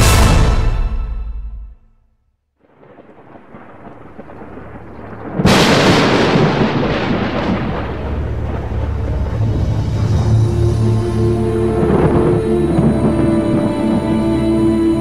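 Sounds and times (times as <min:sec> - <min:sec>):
background music: 0:00.0 - 0:02.0, 0:08.4 - 0:15.0
rumbling noise: 0:02.6 - 0:15.0
storm-like crash: 0:02.7 - 0:14.4.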